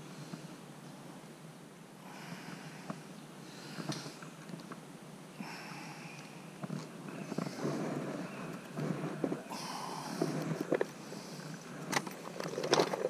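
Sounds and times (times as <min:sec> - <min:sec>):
person breathing and sniffing: 0:02.1 - 0:04.3, 0:05.4 - 0:12.0.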